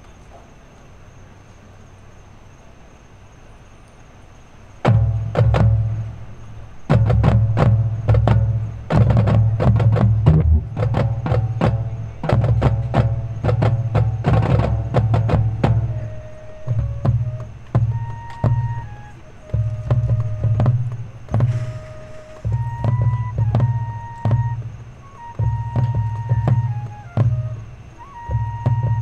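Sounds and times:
marching band percussion hits: 0:04.8 - 0:29.0
deep low sound: 0:09.3 - 0:11.0.

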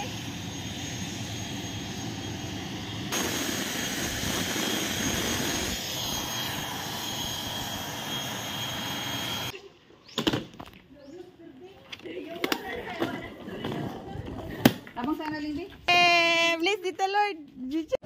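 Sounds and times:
turboprop engine running: 0:00.0 - 0:09.5.

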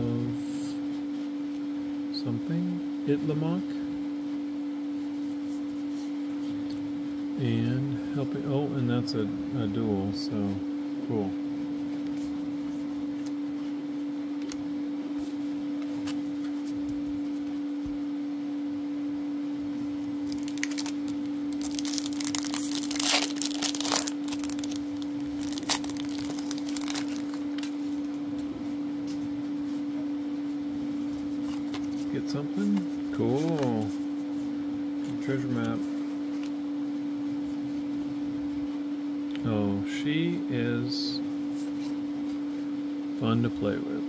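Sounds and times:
steady low hum: 0:00.0 - 0:44.0
foil wrapper tearing and crinkling: 0:20.2 - 0:27.7.

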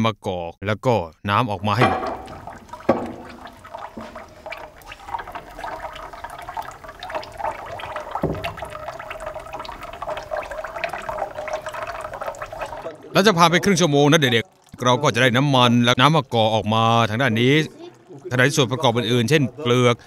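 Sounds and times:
dull knocks: 0:01.8 - 0:06.3, 0:07.2 - 0:10.3
oil trickling into a tub: 0:01.8 - 0:20.0.

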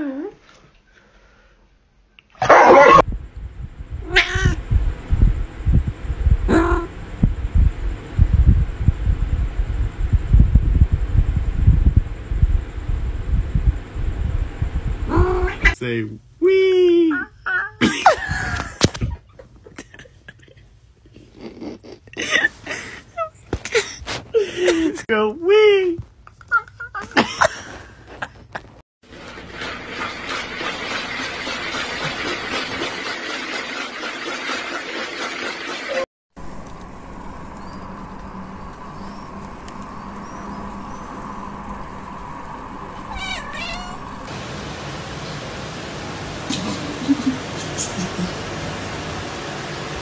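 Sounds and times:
background hum: 0:00.0 - 0:33.6, 0:36.4 - 0:50.0
cat meowing: 0:04.0 - 0:04.6, 0:43.0 - 0:44.3
puppy whining: 0:43.0 - 0:44.1.

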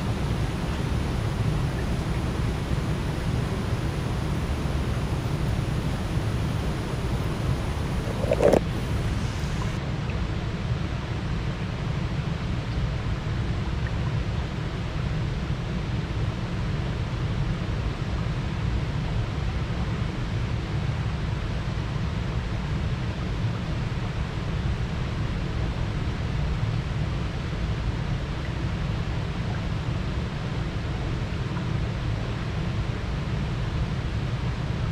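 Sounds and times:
river water rushing: 0:00.0 - 0:09.8.

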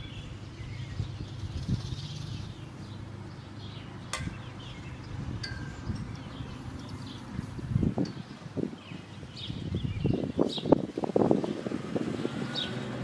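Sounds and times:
steady low hum: 0:00.0 - 0:10.4
sharp clink: 0:04.1 - 0:04.8, 0:05.4 - 0:06.4.

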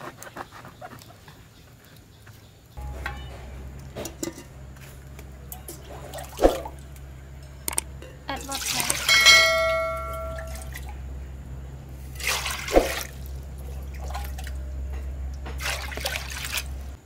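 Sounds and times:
water splashing into metal pot: 0:02.8 - 0:10.9, 0:12.1 - 0:14.7, 0:15.4 - 0:17.0
metallic ring: 0:02.8 - 0:11.1
low hum: 0:02.8 - 0:17.0.

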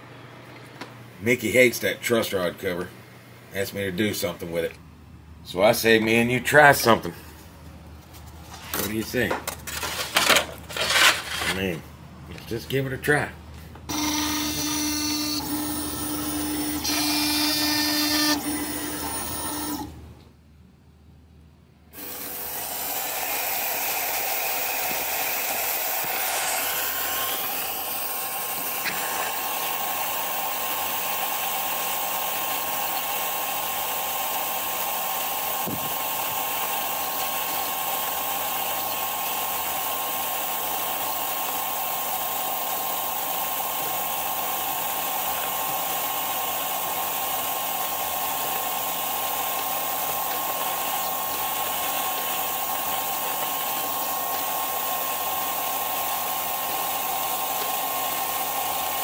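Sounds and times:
fans whirring: 0:00.0 - 0:20.8.

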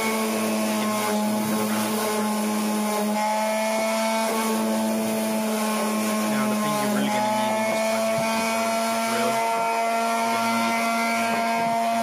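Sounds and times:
orbital sander on wood: 0:00.0 - 0:12.0.

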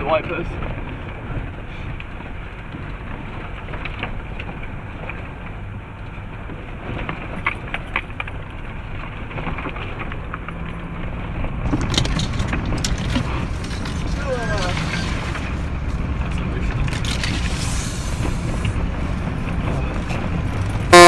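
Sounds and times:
engine and drivetrain rumble: 0:00.0 - 0:21.0
rain-like hiss: 0:17.4 - 0:18.9.

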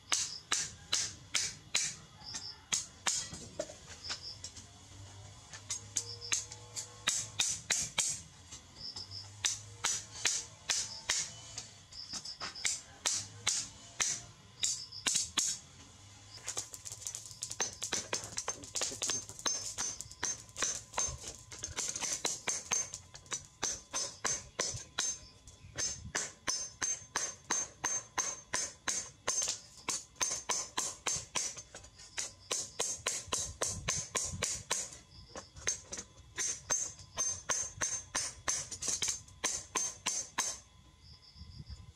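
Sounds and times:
hammer clanging on steel: 0:16.5 - 0:31.6, 0:35.6 - 0:40.6.

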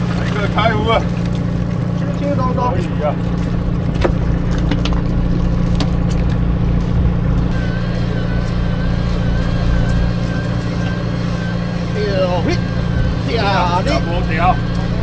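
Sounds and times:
boat engine humming: 0:00.0 - 0:15.0
faint wavering high whine: 0:07.5 - 0:15.0.

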